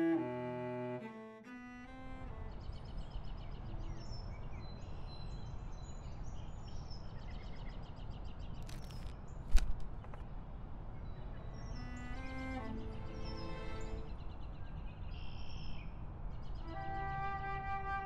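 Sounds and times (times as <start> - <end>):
music: 0.0 - 2.4, 11.8 - 14.0, 16.6 - 18.0
brief rustle: 8.5 - 10.3.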